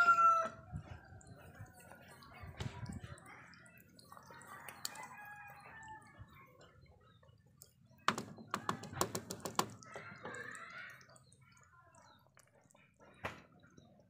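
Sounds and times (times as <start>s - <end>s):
sharp clicks and knocks: 8.0s - 10.4s.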